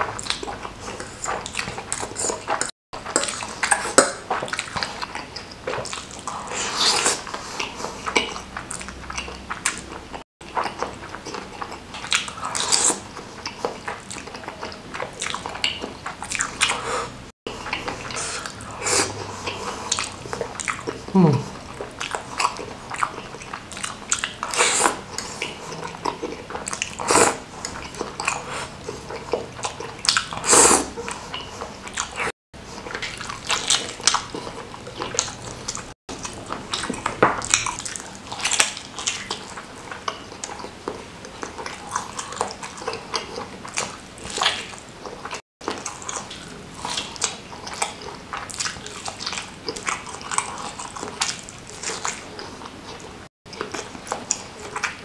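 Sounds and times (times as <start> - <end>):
biting and chewing: 0.0 - 55.0
slurping noodles: 5.7 - 9.9, 12.1 - 13.5, 16.1 - 39.5.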